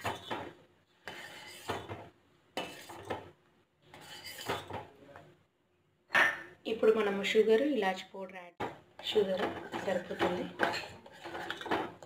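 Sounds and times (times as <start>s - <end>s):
spoon scraping saucepan: 0.0s - 5.0s, 9.0s - 12.0s.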